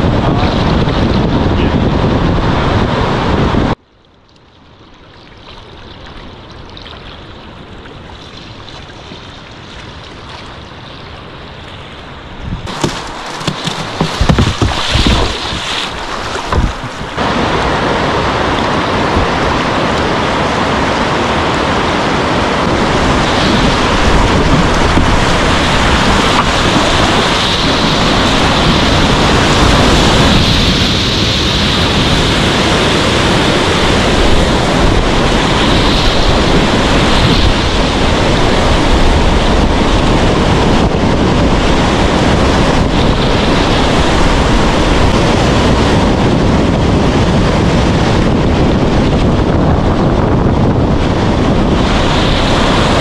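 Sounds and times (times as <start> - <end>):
wind buffeting microphone: 0.0 - 3.8, 5.7 - 53.0
whitewater rushing: 7.0 - 46.3, 51.0 - 53.0.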